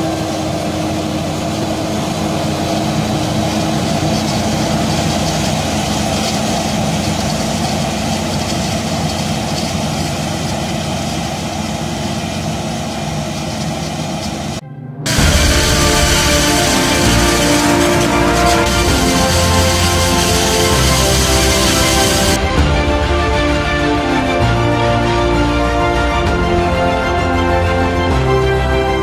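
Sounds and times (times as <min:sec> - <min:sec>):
forage harvester engine under load: 0:00.0 - 0:22.8
tractor engine running: 0:00.0 - 0:25.6.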